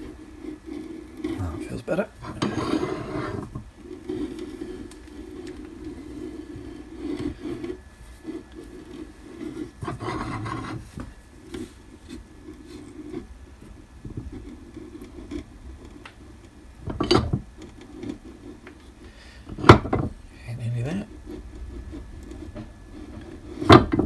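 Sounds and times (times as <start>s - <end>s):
metal rubbing and scraping: 0.0s - 18.7s.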